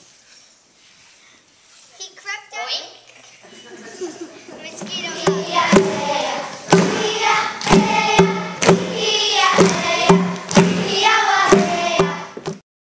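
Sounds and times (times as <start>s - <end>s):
children singing a chant: 4.7s - 12.4s
sharp rhythmic strikes: 4.8s - 12.6s.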